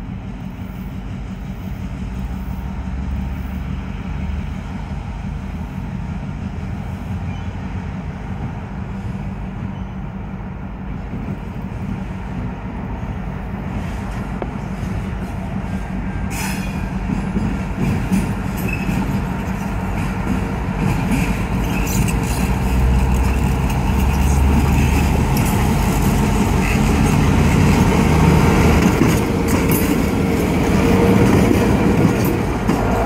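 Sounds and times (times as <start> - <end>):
diesel locomotive engine droning: 0.0 - 33.0
wheels clicking on track: 13.8 - 33.0.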